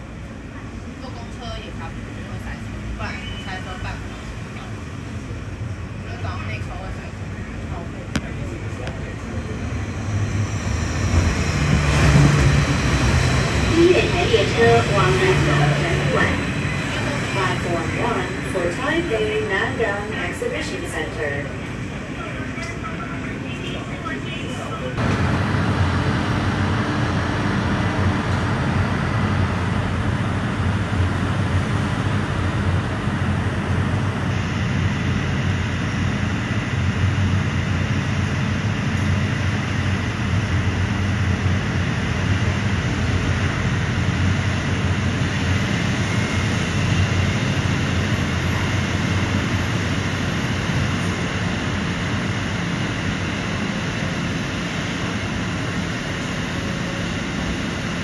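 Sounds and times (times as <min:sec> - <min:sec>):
low rumble of street traffic: 0:00.0 - 0:37.6.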